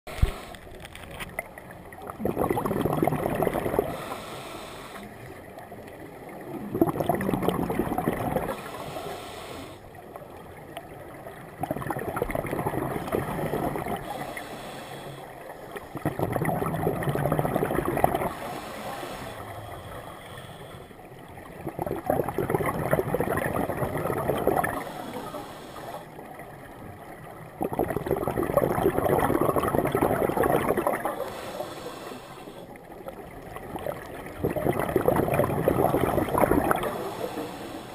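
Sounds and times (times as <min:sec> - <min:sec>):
bubbling of exhaled air: 0:01.4 - 0:05.0, 0:06.4 - 0:10.3, 0:11.5 - 0:26.2, 0:27.4 - 0:37.9
regulator inhalation hiss: 0:03.9 - 0:05.1, 0:08.5 - 0:09.8, 0:14.1 - 0:15.3, 0:24.7 - 0:26.1, 0:31.2 - 0:32.7, 0:36.9 - 0:37.9.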